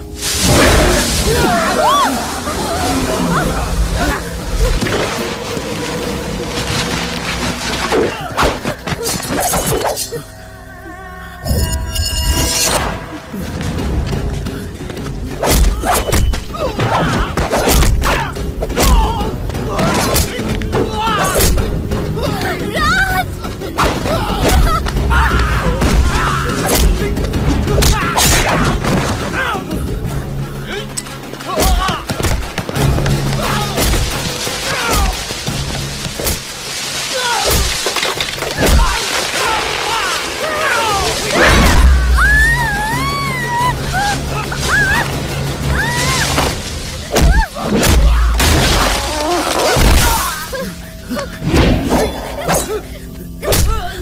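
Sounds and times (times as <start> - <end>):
film background score: 0.0 - 54.0.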